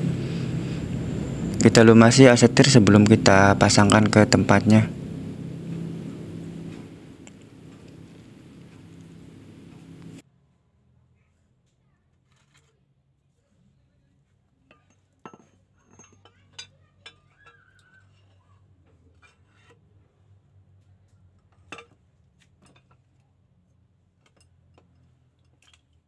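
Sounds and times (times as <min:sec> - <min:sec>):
metallic clinks and knocks: 0:14.7 - 0:18.4.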